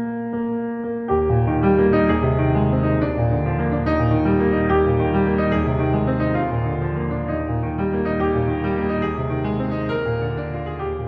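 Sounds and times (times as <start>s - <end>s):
held keyboard chords: 0.9s - 11.0s.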